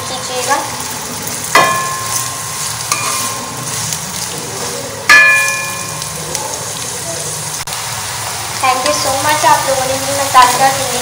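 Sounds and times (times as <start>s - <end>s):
onions sizzling in oil: 0.0s - 11.0s
spatula tapping pan: 1.5s - 4.3s, 5.1s - 6.2s
spatula clanging on wok: 1.5s - 6.3s.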